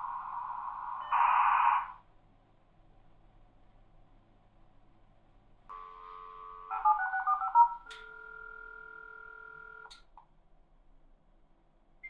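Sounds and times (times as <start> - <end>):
dial tone: 5.7 - 9.9.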